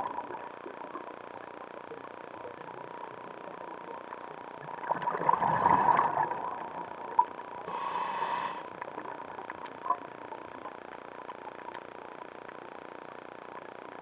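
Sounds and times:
underwater background: 0.0 - 14.0
underwater regulator breathing: 7.7 - 8.8.

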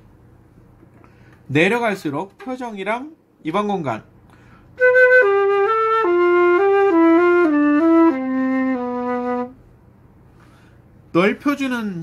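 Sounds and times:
flute playing descending phrase: 4.8 - 9.6.

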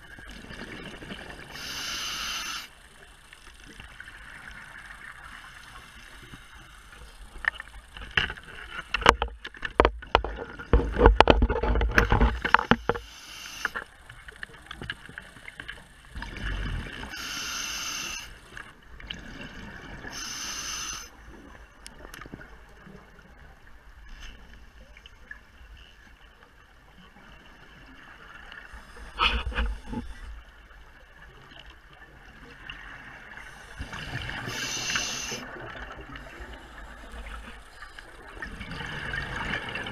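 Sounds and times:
exhaled bubbles rumbling underwater: 0.0 - 1.9, 14.2 - 17.2, 18.4 - 20.2, 24.7 - 39.9
hissing regulator breaths: 1.5 - 2.8, 12.7 - 13.9, 17.1 - 18.6, 20.0 - 21.2, 33.4 - 35.6.

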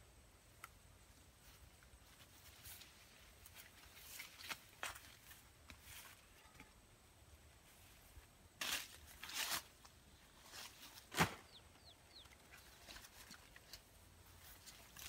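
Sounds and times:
large leaves rustling: 1.3 - 6.3, 7.6 - 11.7, 12.4 - 15.0.

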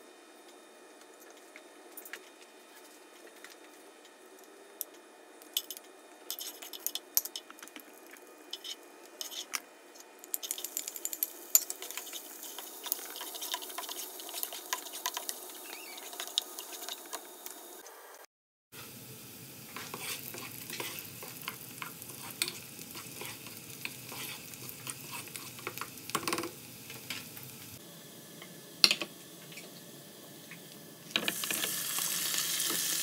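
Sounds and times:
spices and onion frying in oil: 4.1 - 17.8, 18.8 - 33.0
spatula tapping and scraping pot: 10.4 - 15.4, 19.8 - 26.5.

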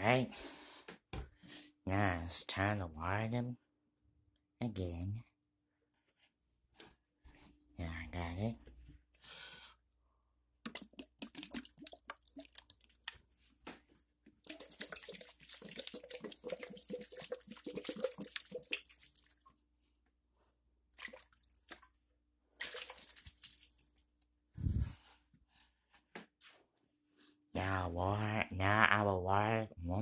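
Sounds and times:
water pouring onto soil: 10.7 - 13.2, 14.4 - 19.4, 22.6 - 24.0.

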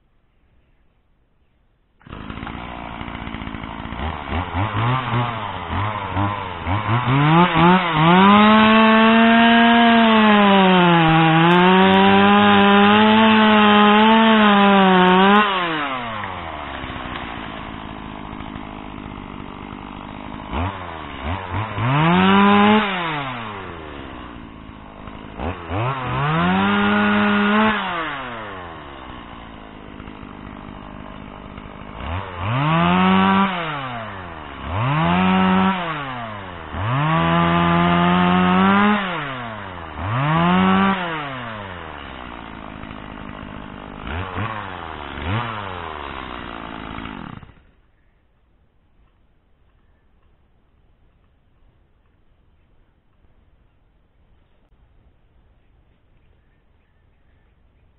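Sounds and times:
chainsaw idling and revving: 2.0 - 47.9.

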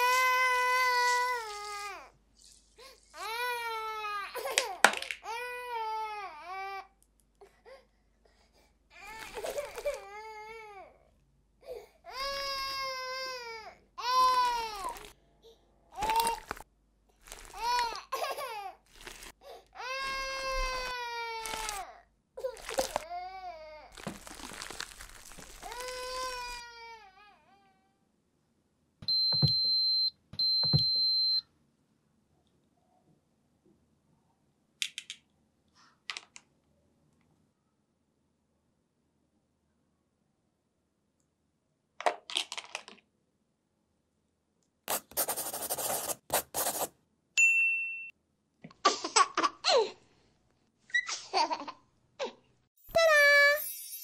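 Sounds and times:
child-like wailing cries: 0.0 - 2.1, 12.1 - 15.1, 19.8 - 24.0, 25.6 - 28.0.

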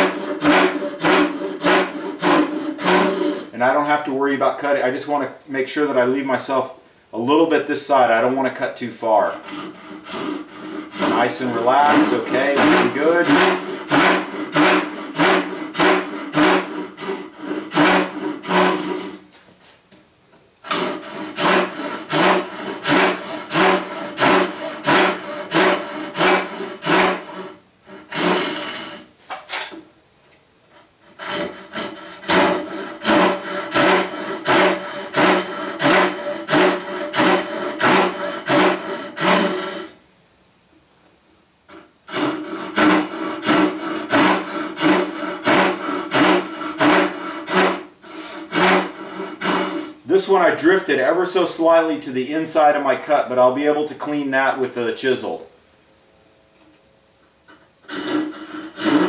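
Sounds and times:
hand saw rasping through wood: 0.0 - 4.0, 9.2 - 19.2, 20.6 - 29.1, 31.0 - 40.0, 42.1 - 50.8, 57.8 - 59.0.

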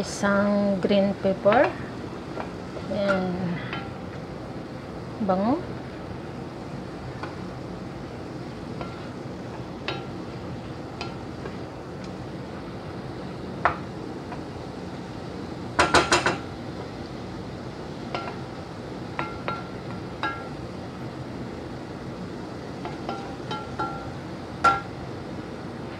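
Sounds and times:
spatula knocking against pot: 22.8 - 24.9.

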